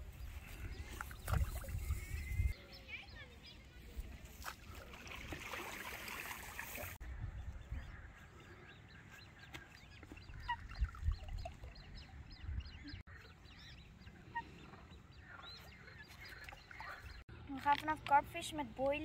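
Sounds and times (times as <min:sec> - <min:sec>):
wind rumble on microphone: 0:00.0 - 0:02.6, 0:07.0 - 0:08.3, 0:10.2 - 0:13.0
birds chirping: 0:00.0 - 0:05.0, 0:06.5 - 0:19.0.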